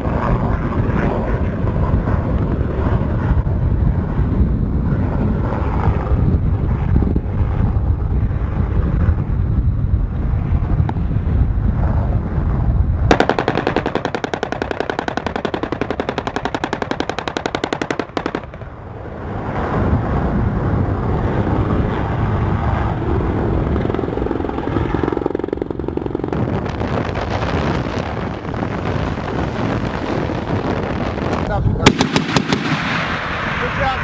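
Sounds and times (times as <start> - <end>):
steady rumble: 0.0 - 34.0
rotary cannon firing burst: 13.1 - 18.8, 31.8 - 34.0.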